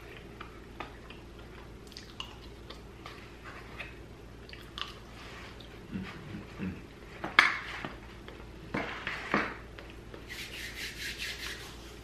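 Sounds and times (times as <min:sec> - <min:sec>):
hands rubbing together: 0:10.3 - 0:12.0.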